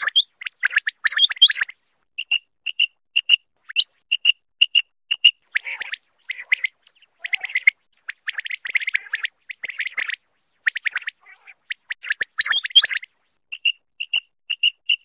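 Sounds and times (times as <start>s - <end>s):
quail chirping: 0.0s - 15.0s.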